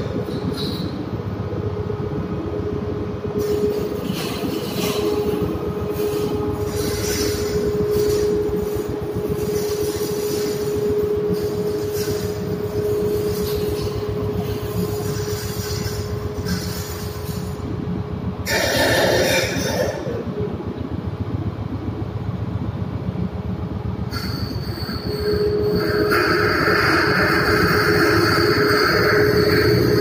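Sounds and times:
humming whine: 0.0s - 30.0s
steering gear machinery rumble: 0.0s - 30.0s.

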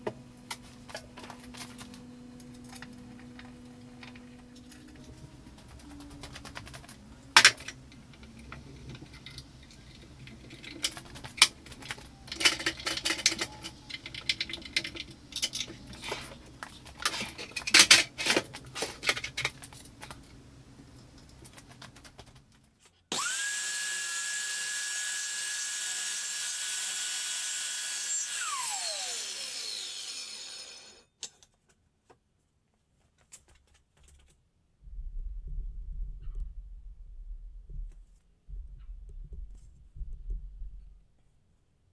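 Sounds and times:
power tool motor whining: 23.1s - 31.0s.

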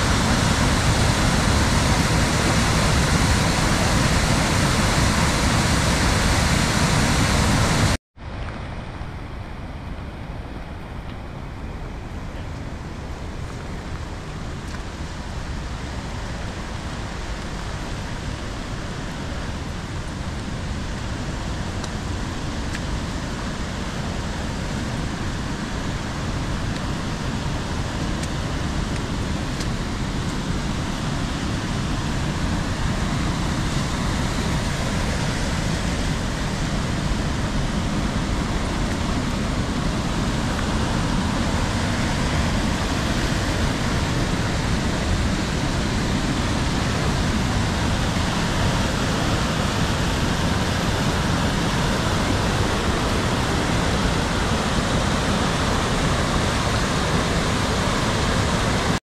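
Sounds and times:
creek rushing over rocks: 0.0s - 59.0s.

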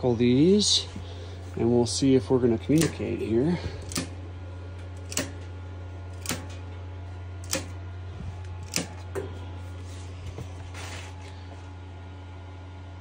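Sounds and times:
steady low hum: 0.0s - 13.0s
switch clicks: 2.7s - 3.2s, 3.8s - 4.2s, 5.0s - 5.5s, 6.2s - 6.7s, 7.4s - 7.8s, 8.6s - 9.1s.

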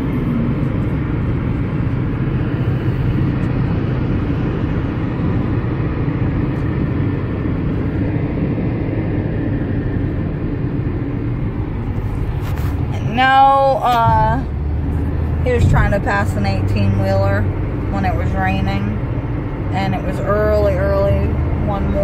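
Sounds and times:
car cabin road noise: 0.0s - 22.0s.

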